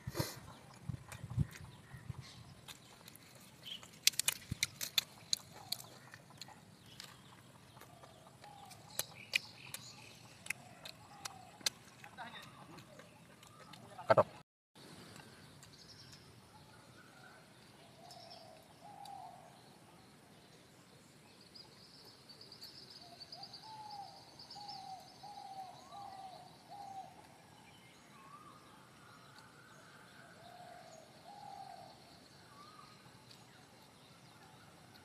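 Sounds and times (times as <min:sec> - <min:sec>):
thin bird chirps and trill: 0:00.6 - 0:13.9.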